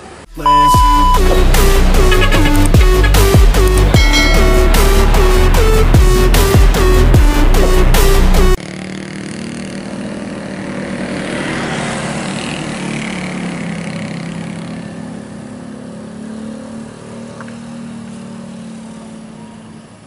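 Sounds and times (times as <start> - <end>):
bus diesel engine running: 0.0 - 8.6.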